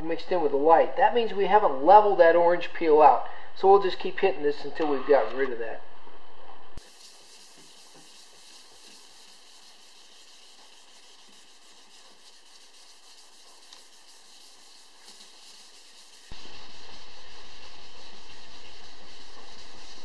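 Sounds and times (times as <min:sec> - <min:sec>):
sanding block rubbing strokes: 0:06.8 - 0:20.0
steady hiss: 0:06.8 - 0:20.0.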